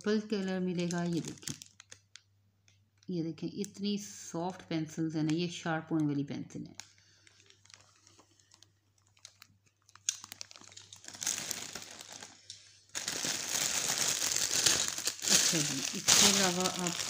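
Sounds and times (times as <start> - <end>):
cellophane crinkling: 0.0 - 3.1, 6.7 - 17.0.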